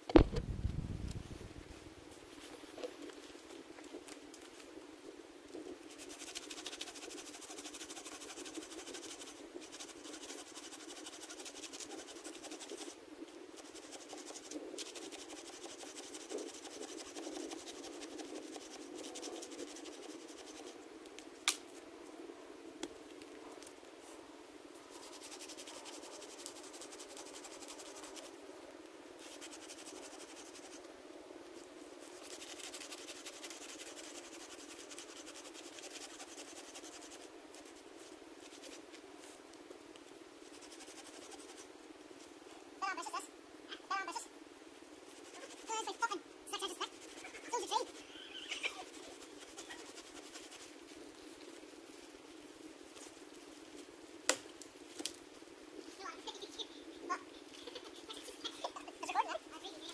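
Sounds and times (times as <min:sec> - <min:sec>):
hand saw cutting log: 0:06.0 - 0:13.0, 0:13.6 - 0:20.6.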